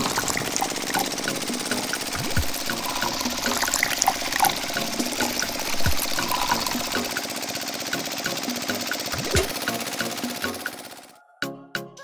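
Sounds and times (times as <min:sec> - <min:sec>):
liquid trickling into plastic bucket: 0:00.0 - 0:07.1
regular mechanical ticking: 0:00.0 - 0:11.1
small electric motor running: 0:00.0 - 0:11.2.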